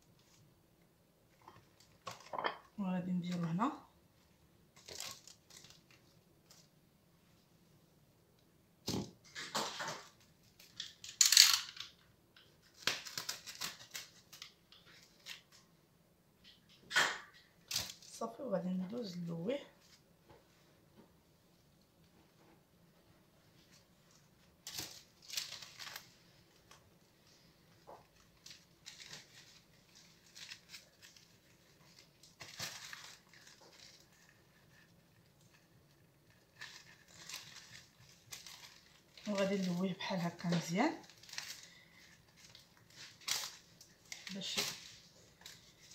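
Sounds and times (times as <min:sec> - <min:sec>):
cling film crinkling: 0:04.7 - 0:06.8, 0:09.2 - 0:15.6, 0:23.6 - 0:45.9.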